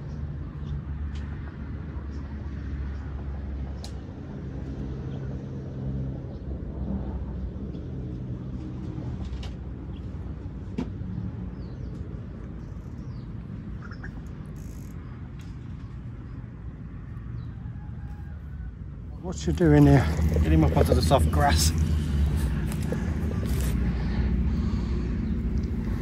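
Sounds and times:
low mechanical rumble with hum: 0:07.5 - 0:26.0
faint bird chirps: 0:12.6 - 0:15.1.

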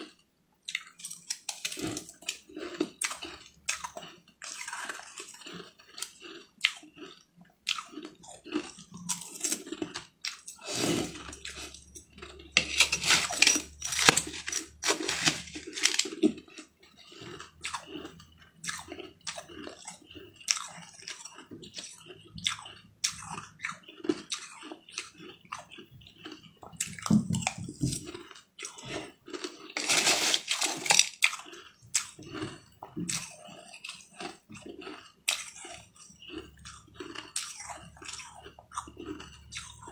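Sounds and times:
person crunching ice: 0:01.0 - 0:18.0, 0:23.9 - 0:38.3.

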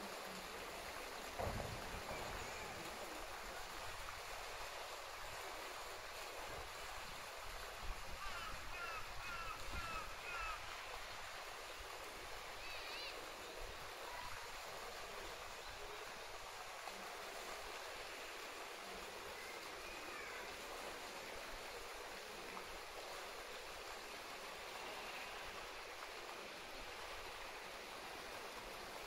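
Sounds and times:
water rushing in pool: 0:00.0 - 0:29.0.

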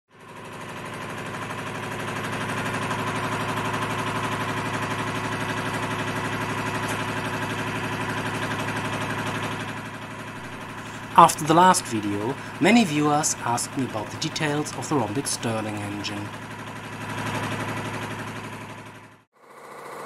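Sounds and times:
engine running with fast pulse: 0:00.2 - 0:20.0.

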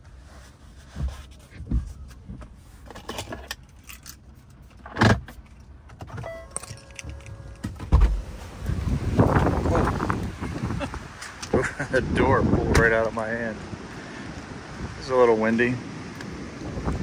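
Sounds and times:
knocks and rustles in truck cab: 0:00.8 - 0:03.5, 0:07.6 - 0:10.8
low wind rumble: 0:07.4 - 0:17.0
thump: 0:07.8 - 0:08.2.

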